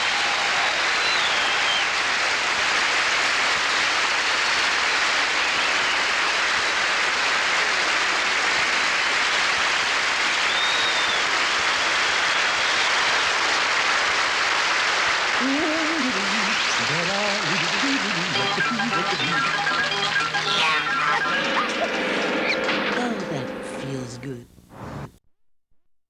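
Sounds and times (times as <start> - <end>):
audience applauding: 0.0 - 22.6.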